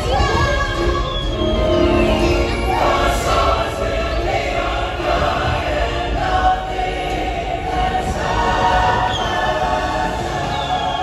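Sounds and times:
soundtrack music: 1.0s - 8.9s
choir singing: 1.3s - 11.0s.

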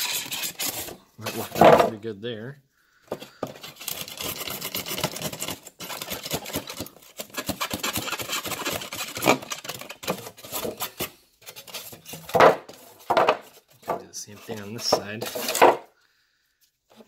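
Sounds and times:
knife sawing through foam: 0.0s - 1.6s, 3.6s - 11.0s.

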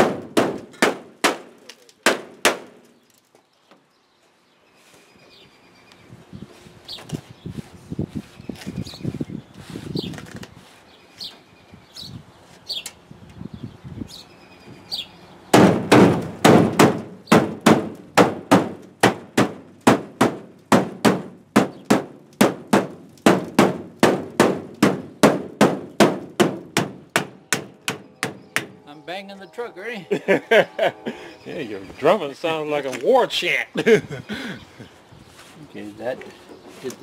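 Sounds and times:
rubber mallet hammering: 0.0s - 2.7s, 15.5s - 28.7s.

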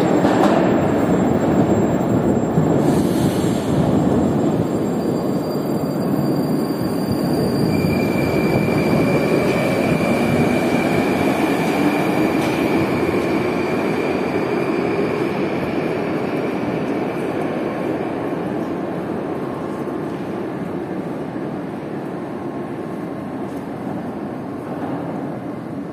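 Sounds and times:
train wheels and motors rumbling: 0.0s - 25.9s
high squeal: 1.6s - 16.7s.

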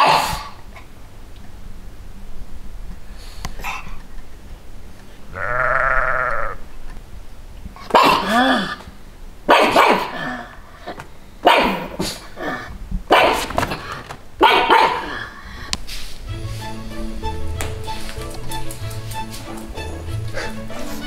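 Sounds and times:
sheep bleating: 5.3s - 6.7s
dog barking: 7.9s - 8.4s, 9.5s - 10.4s, 11.4s - 15.3s.

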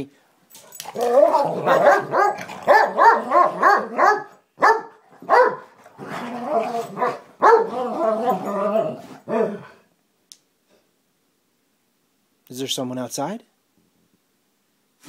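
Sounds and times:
dogs drawn-out calls: 1.0s - 5.6s
dogs barking: 1.0s - 5.8s, 6.9s - 8.6s.

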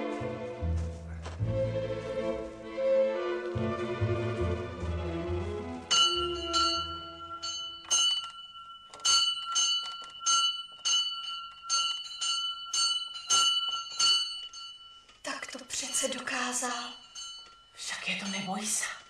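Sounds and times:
soft orchestral music: 0.0s - 7.8s
small bell ringing: 5.9s - 19.0s.

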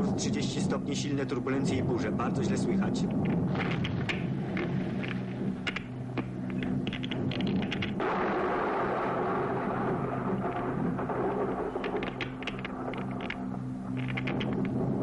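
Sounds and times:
aircraft engine droning: 0.0s - 8.1s, 9.0s - 15.0s
steady rushing noise: 0.0s - 15.0s
light clicks and rattles: 3.0s - 8.0s, 11.8s - 14.8s.

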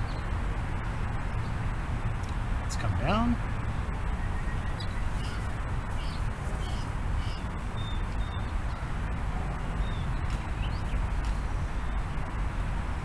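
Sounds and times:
wind noise on microphone: 0.0s - 13.0s.

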